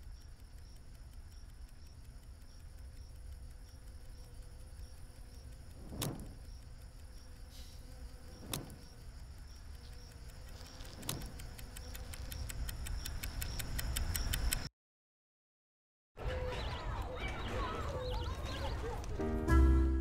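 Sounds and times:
clock ticking: 0:00.0 - 0:14.7.

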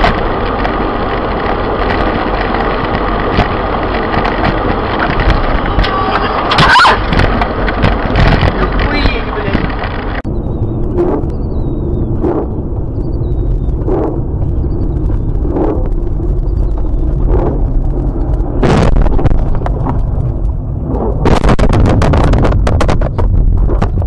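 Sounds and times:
car road and engine noise: 0:00.0 - 0:24.0
low road and engine rumble: 0:00.0 - 0:24.0.

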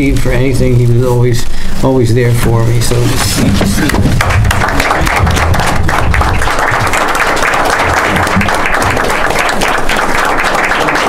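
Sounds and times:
crowd clapping: 0:03.6 - 0:11.0.

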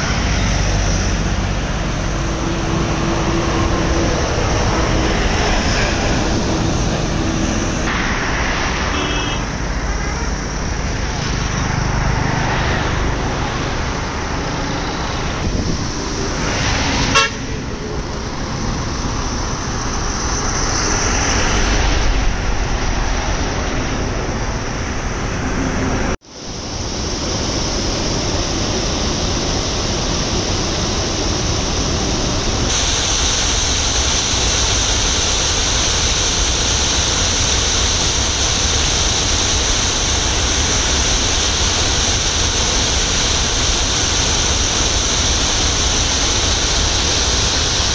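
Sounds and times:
floodwater rushing: 0:00.0 - 0:47.9
road traffic: 0:00.0 - 0:47.9
car horn toot: 0:08.9 - 0:10.3, 0:17.1 - 0:17.6.

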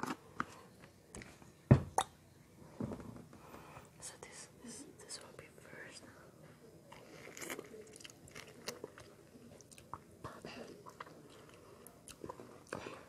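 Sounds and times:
person chewing mango: 0:06.9 - 0:10.1, 0:10.8 - 0:12.9.

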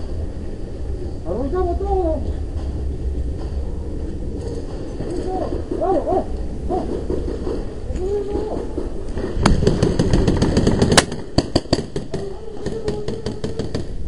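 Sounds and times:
paintball markers firing: 0:09.4 - 0:14.0.

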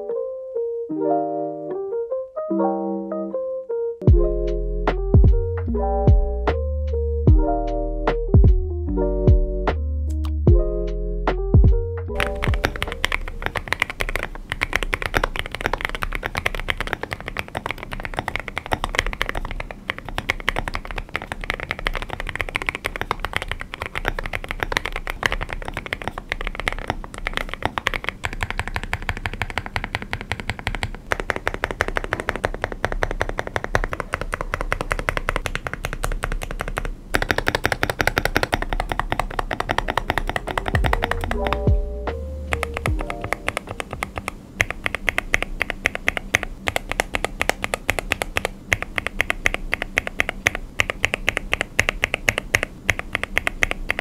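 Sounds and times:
fast mechanical keyboard typing: 0:12.1 - 0:41.8, 0:42.5 - 0:54.0.

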